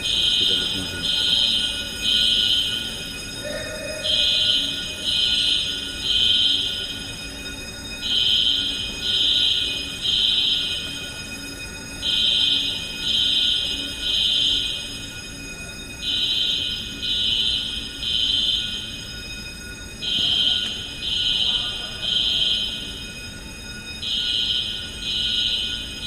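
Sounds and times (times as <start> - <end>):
fire alarm horn beeping: 0.0 - 26.0.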